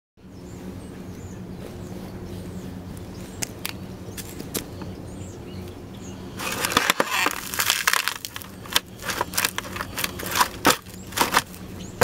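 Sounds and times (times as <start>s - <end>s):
steady low hum: 0.2s - 12.0s
boot stepping on foam carton: 6.4s - 11.6s.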